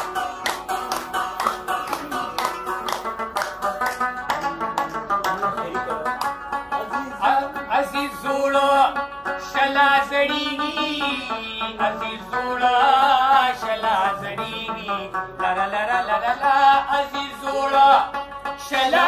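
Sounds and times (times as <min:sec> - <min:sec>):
plucked lute: 0:00.0 - 0:19.0
man singing: 0:06.8 - 0:19.0.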